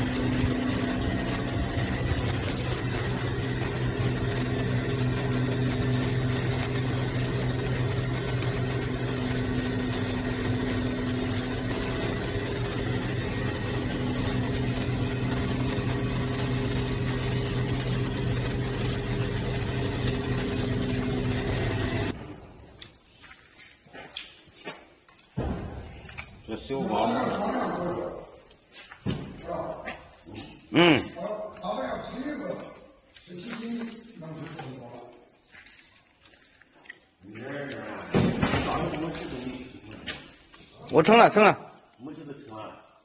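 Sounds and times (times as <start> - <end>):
machinery humming: 0.0 - 23.1.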